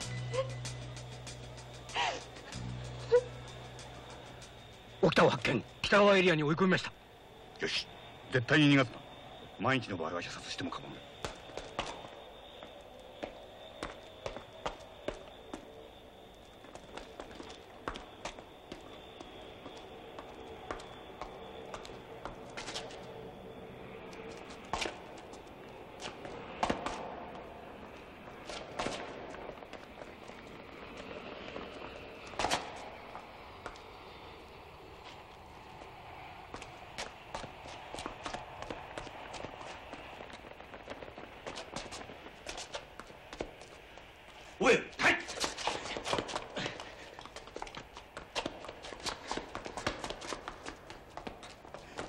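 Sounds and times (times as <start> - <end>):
low background hum: 0.0 - 52.0
man running footsteps: 10.7 - 52.0.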